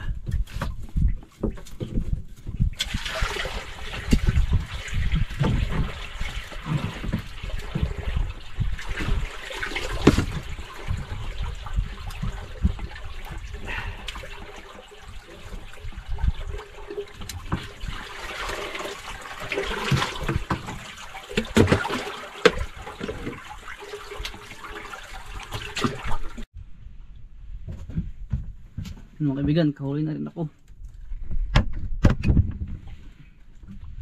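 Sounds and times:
water splashing against boat: 0.0 - 26.5.

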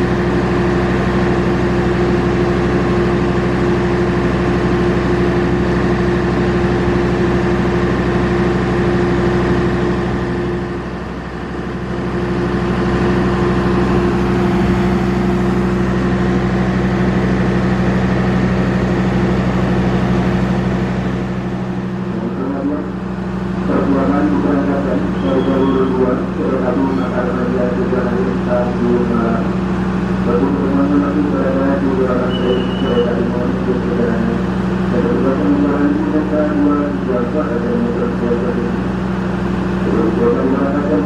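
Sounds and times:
diesel train engine idling: 0.0 - 41.0.

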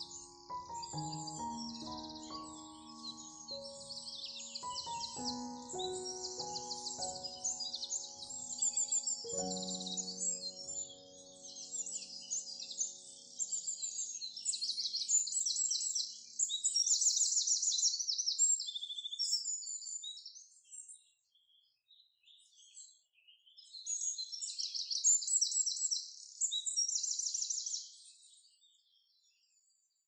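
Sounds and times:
songbird singing: 0.0 - 21.6.

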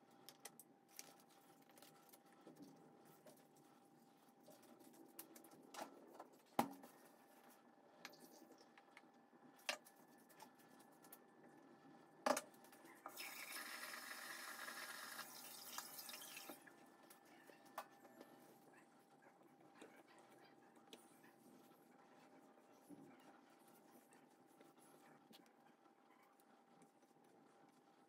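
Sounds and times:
water tap running: 13.1 - 16.6.

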